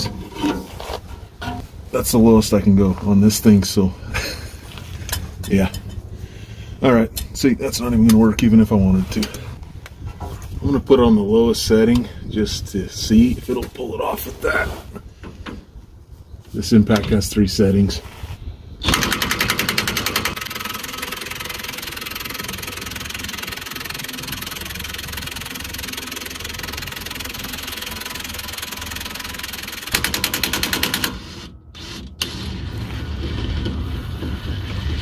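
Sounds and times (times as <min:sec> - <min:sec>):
impact wrench running: 0:18.8 - 0:32.5
impact wrench hammering: 0:29.7 - 0:31.2.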